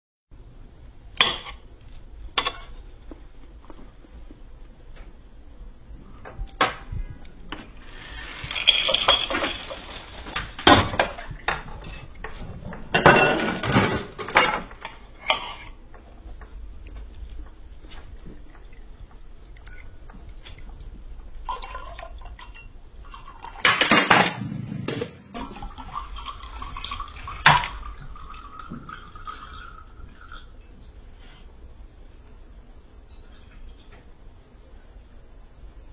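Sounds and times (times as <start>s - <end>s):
parts knocking and clattering: 8.3s - 15.0s
rushing burst: 24.2s - 25.4s.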